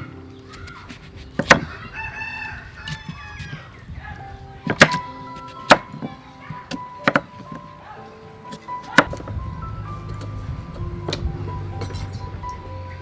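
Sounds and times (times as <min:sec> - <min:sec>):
knife chopping into wooden block: 0:00.6 - 0:01.7
rooster crowing: 0:01.6 - 0:03.8.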